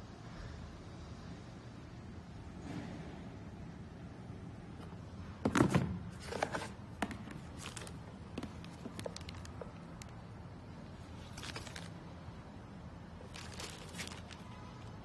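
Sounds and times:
low steady hum: 0:00.0 - 0:15.0
handling knocks and rustles: 0:04.8 - 0:09.8, 0:11.2 - 0:12.0, 0:13.2 - 0:15.0.

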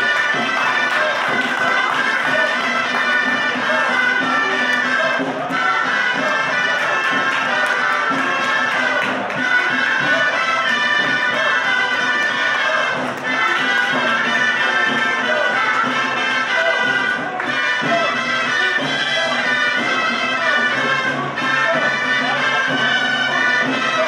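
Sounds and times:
shawms playing a melody: 0:00.0 - 0:24.0.

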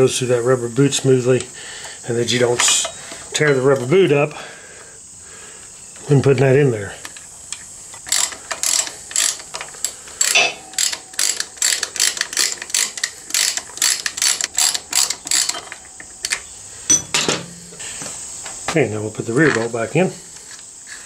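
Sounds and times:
ratchet wrench clicking: 0:08.0 - 0:16.4.

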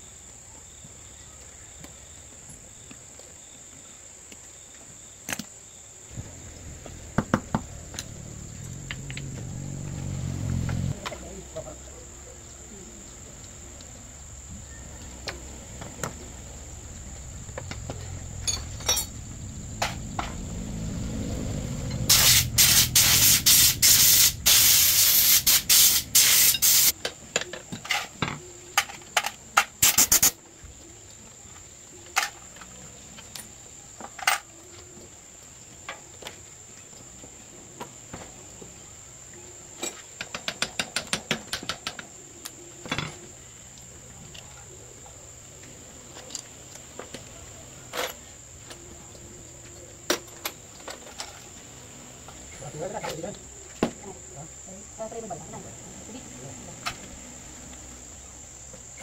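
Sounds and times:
crickets chirring: 0:00.0 - 0:59.0
loud spraying hiss: 0:16.2 - 0:27.0, 0:29.8 - 0:30.4.

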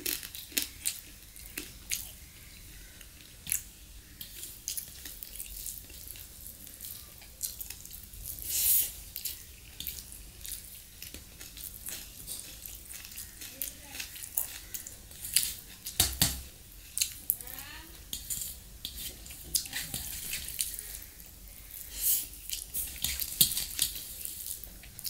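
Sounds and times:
fingers squishing rice: 0:02.8 - 0:17.4.

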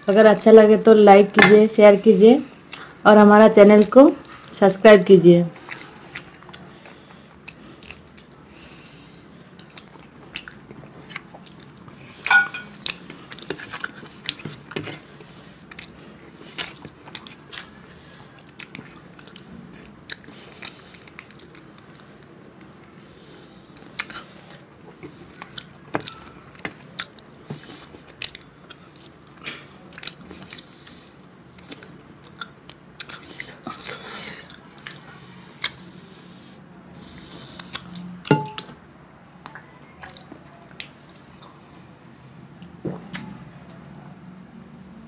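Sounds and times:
person chewing food: 0:02.5 - 0:03.0, 0:05.5 - 0:44.0
wet mouth smacks and clicks: 0:37.6 - 0:38.4, 0:42.6 - 0:43.4.

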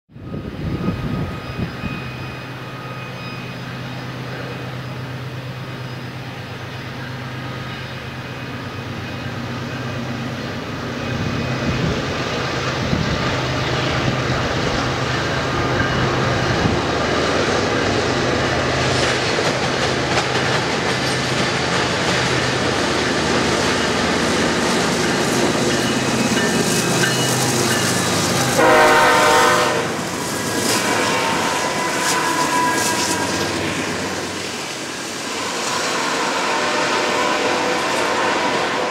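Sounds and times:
diesel locomotive engine drone: 0:00.1 - 0:38.9
train wheels clattering over rails: 0:10.8 - 0:38.9
train horn blowing: 0:28.4 - 0:34.4, 0:35.5 - 0:38.9.

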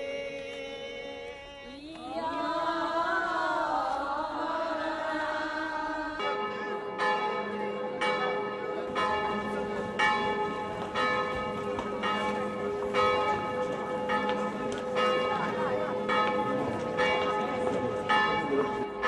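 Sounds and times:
church bells ringing: 0:04.7 - 0:19.0.

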